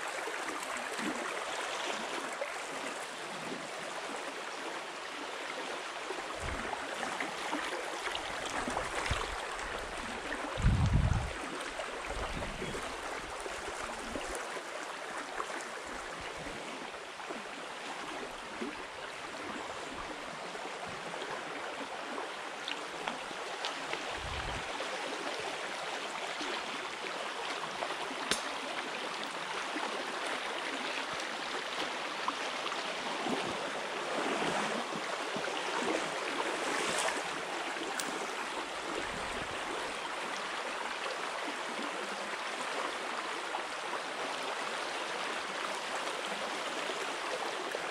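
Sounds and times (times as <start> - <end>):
stream rushing over gravel: 6.1 - 15.4, 22.8 - 40.1.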